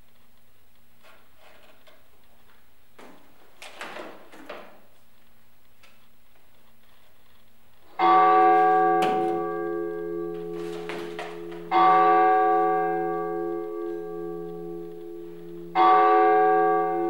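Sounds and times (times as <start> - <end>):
large church bell tolling: 7.9 - 17.0.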